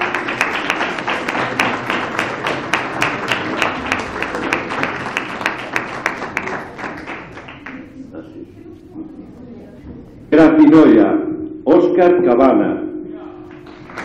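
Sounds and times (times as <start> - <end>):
nearby person's sharp claps: 0.0 - 7.8, 13.5 - 14.0
audience applauding: 0.0 - 8.2, 13.5 - 14.0.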